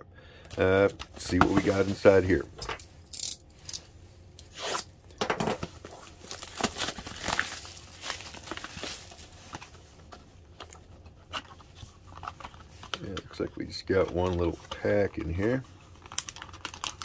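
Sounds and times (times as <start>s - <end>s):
plastic wrap crinkling: 5.6s - 17.0s.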